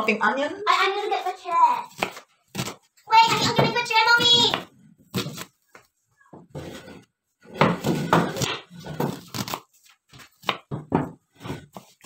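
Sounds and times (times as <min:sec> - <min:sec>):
knife chopping on wooden board: 0:07.5 - 0:12.0.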